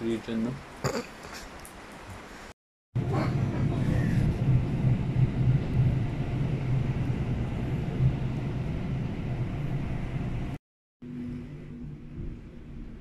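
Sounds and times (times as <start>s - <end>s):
train running gear rumble: 3.0s - 10.6s.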